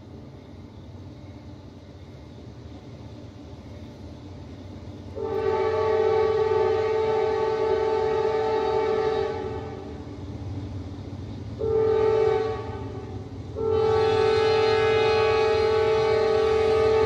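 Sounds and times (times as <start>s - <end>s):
train rumbling: 0.0s - 17.0s
locomotive horn blast: 5.2s - 10.0s, 11.6s - 17.0s.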